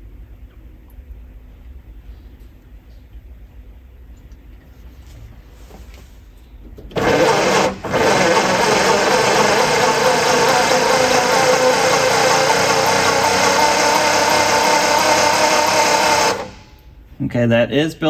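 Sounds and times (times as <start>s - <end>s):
starter motor cranking: 6.9s - 16.8s
car engine running: 7.0s - 16.7s.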